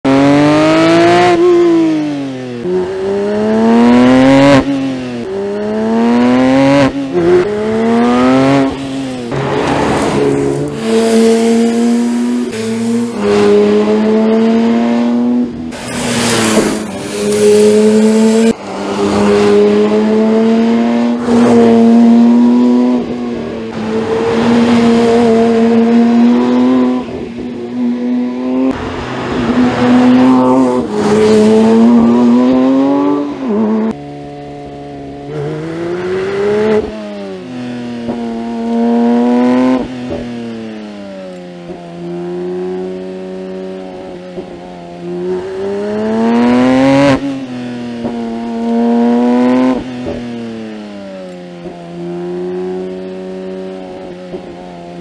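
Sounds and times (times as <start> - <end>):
sports car engine at high revs: 0.1 - 55.0.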